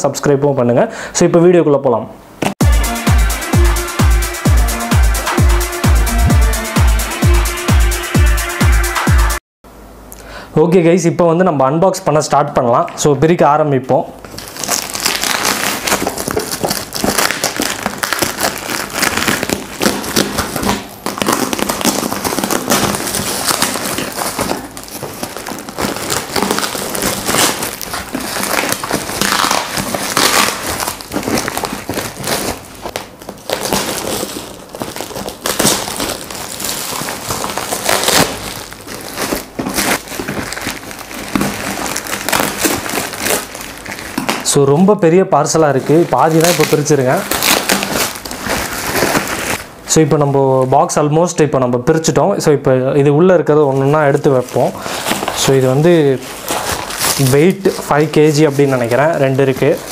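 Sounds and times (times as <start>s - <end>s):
packaging wrap crinkling and tearing: 14.2s - 49.7s, 53.7s - 59.9s.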